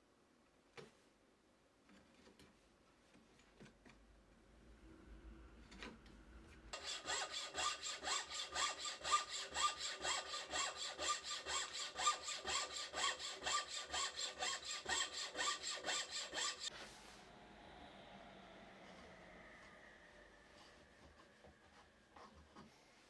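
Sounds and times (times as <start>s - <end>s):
frame saw cutting wood: 6.7s - 16.8s.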